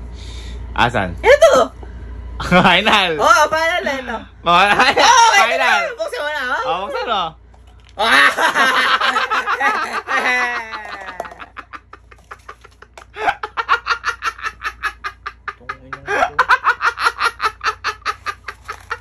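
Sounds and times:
man laughing: 0:08.0 - 0:19.0.

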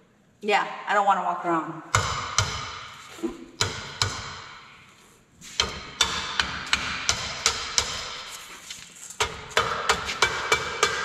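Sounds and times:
hammer striking metal: 0:01.9 - 0:03.0, 0:03.6 - 0:04.7, 0:05.6 - 0:08.2, 0:09.2 - 0:11.0.

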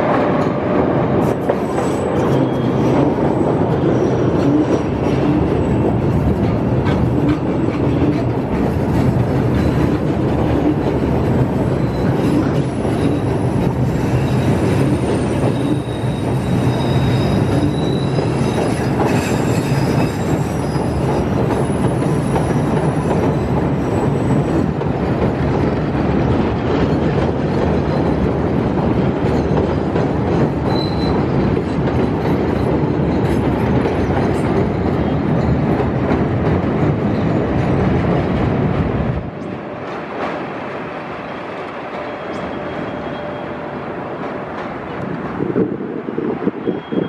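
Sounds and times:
train wheels on rail: 0:00.0 - 0:47.0
high wheel squeal: 0:01.7 - 0:04.6, 0:11.7 - 0:24.7, 0:30.6 - 0:31.5, 0:41.3 - 0:43.8, 0:46.6 - 0:47.0.

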